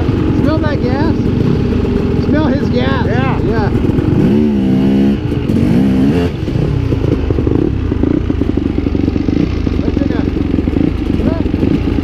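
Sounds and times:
dirt bike engine revving: 0:00.0 - 0:12.0.

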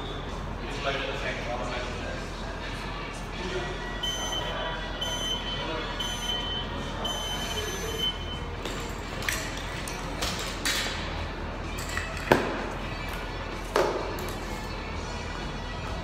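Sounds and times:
timer beeping: 0:04.0 - 0:08.5.

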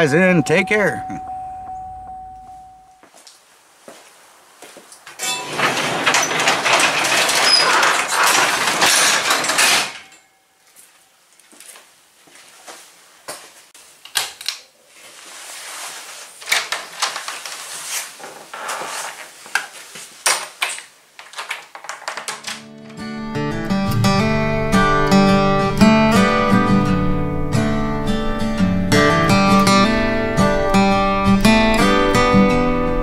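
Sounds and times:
garage door rolling down: 0:05.2 - 0:10.2.

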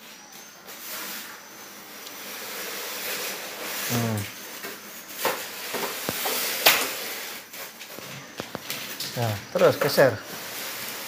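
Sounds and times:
scraping and rustling handling noise: 0:02.2 - 0:11.0
person grunting: 0:03.9 - 0:04.3.

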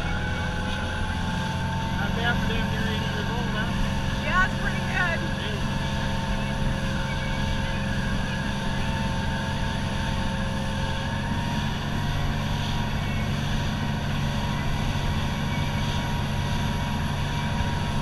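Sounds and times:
faint engine whine: 0:00.0 - 0:18.0
motorboat engines droning: 0:00.0 - 0:18.0.

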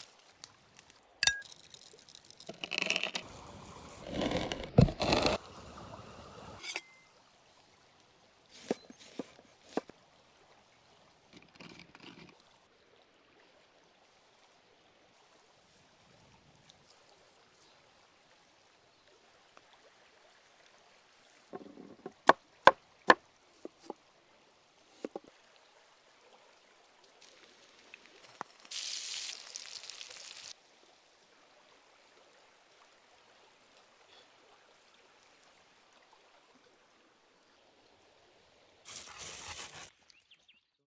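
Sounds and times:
shallow stream flowing: 0:00.0 - 0:40.5.

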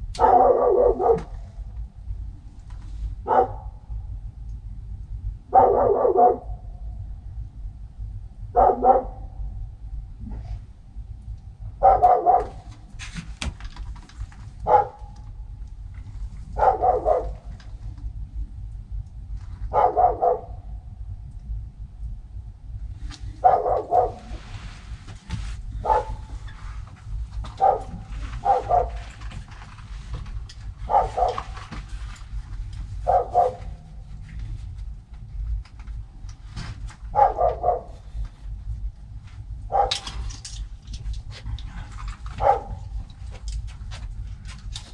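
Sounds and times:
steady low rumble: 0:00.0 - 0:44.9
dog barking: 0:00.2 - 0:01.5, 0:03.2 - 0:03.8, 0:05.5 - 0:06.6, 0:08.5 - 0:09.3, 0:11.8 - 0:12.7, 0:14.6 - 0:15.2, 0:16.6 - 0:17.6, 0:19.7 - 0:20.7, 0:23.4 - 0:24.4, 0:25.8 - 0:26.3, 0:27.5 - 0:29.2, 0:30.8 - 0:31.6, 0:33.0 - 0:33.9, 0:37.1 - 0:38.1, 0:39.7 - 0:40.2, 0:42.3 - 0:43.0.

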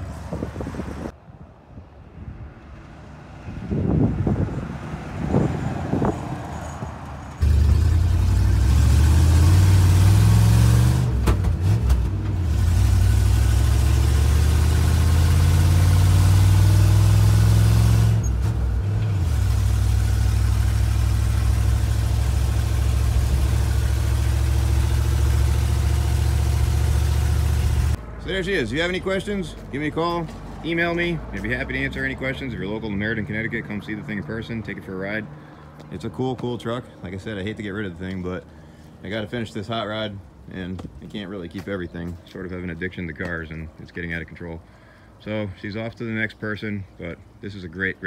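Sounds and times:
truck engine droning: 0:04.0 - 0:40.1.

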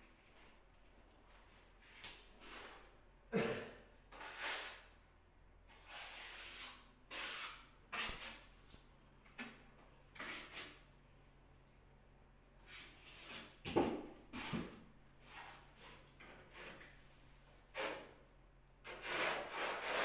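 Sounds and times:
rasping scrapes on tiled wall: 0:04.1 - 0:04.9, 0:05.7 - 0:08.5, 0:10.2 - 0:10.8, 0:12.7 - 0:13.6, 0:17.7 - 0:18.1, 0:18.8 - 0:20.0.

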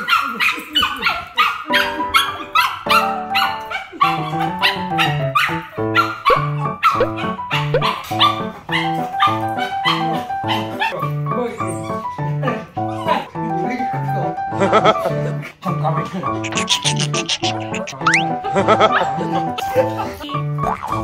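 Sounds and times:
small dog barking and yipping: 0:00.0 - 0:11.0, 0:16.5 - 0:18.2.

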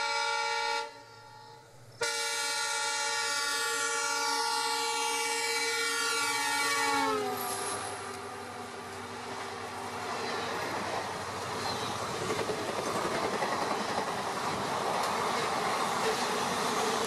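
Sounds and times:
locomotive horn: 0:00.0 - 0:08.4
train wheels clattering on rails: 0:08.9 - 0:17.0.

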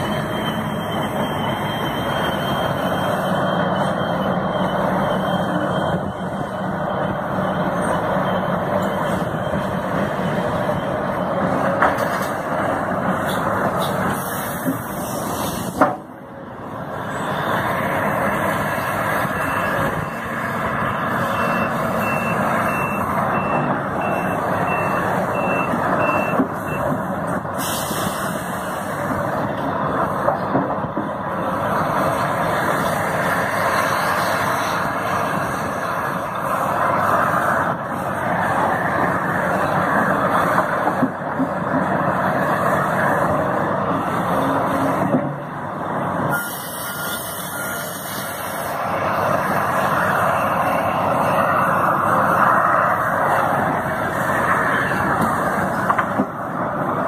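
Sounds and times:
excavator diesel engine rumbling: 0:00.0 - 0:57.0
backup alarm beeping: 0:21.3 - 0:26.9.

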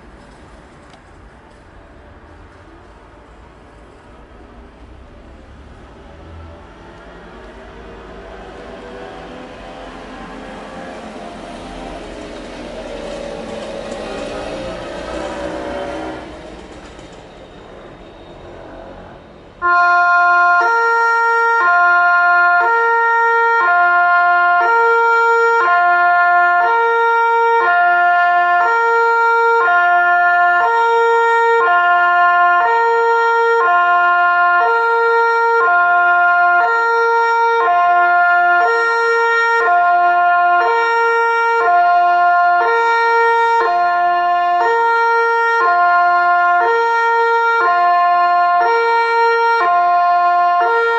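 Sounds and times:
background noise: 0:00.0 - 0:19.6
two-tone electronic siren: 0:19.6 - 0:50.9.

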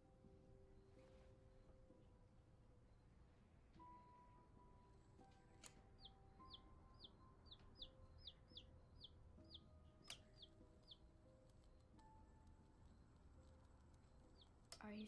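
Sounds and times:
faint sustained music tones: 0:00.0 - 0:15.0
baby chick peeping: 0:06.0 - 0:11.0, 0:14.3 - 0:14.5.

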